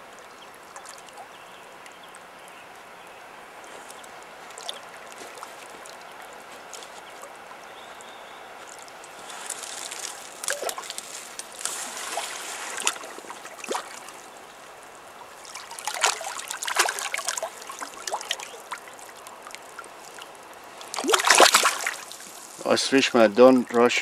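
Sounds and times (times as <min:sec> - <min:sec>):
fish splashing in water: 0:03.7 - 0:22.7.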